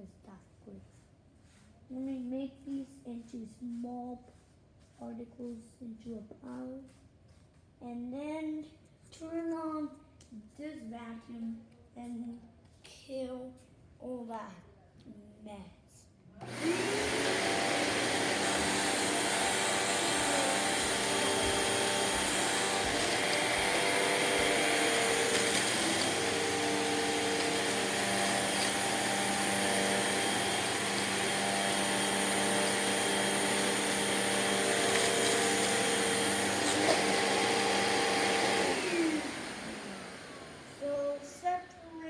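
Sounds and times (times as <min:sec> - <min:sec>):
vacuum sucking up crumbs: 0:16.4 - 0:41.5
vacuum cleaner motor running: 0:16.4 - 0:41.6.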